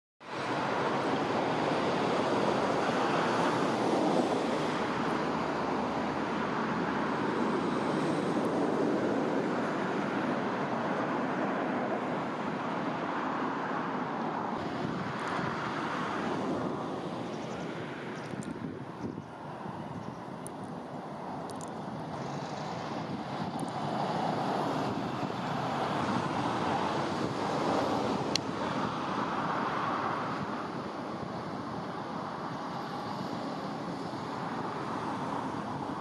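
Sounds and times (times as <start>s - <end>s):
river water rushing over stones: 0.2s - 36.0s.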